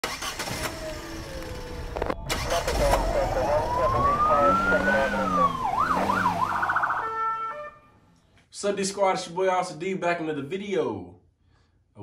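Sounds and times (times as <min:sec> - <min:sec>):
police siren wail: 0:00.4 - 0:07.9
low rumble: 0:00.9 - 0:05.8.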